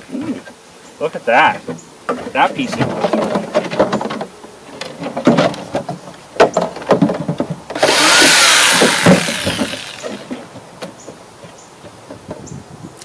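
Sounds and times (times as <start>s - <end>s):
jigsaw running: 7.8s - 10.4s.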